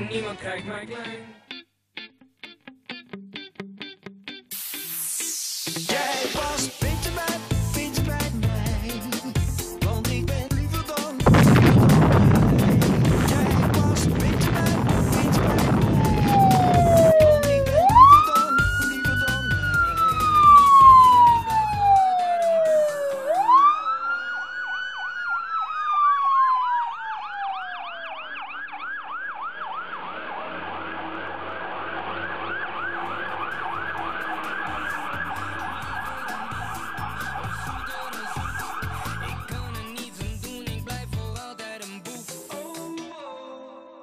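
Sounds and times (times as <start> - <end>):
low music beat: 6.8 - 23.7, 33.5 - 41.3
police siren wailing and yelping: 15.1 - 39.7.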